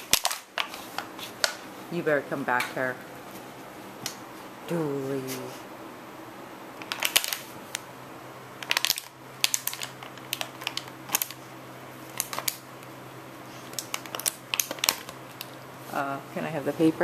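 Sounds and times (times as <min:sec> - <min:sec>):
plastic bottle crackling: 0:00.0 - 0:00.8, 0:06.8 - 0:07.5, 0:08.6 - 0:11.4, 0:12.1 - 0:12.6, 0:13.7 - 0:15.5.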